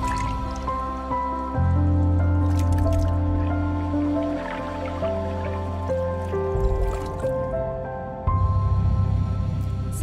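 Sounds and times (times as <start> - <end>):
dripping water effects: 0.0 - 7.6.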